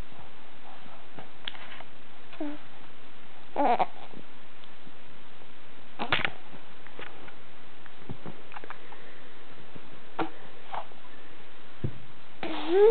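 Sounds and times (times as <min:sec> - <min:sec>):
baby sniffing and snuffling: 0:12.4 - 0:12.9.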